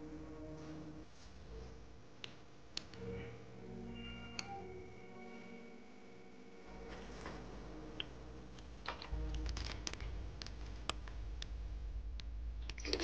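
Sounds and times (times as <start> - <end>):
low rumble: 7.4 - 13.0.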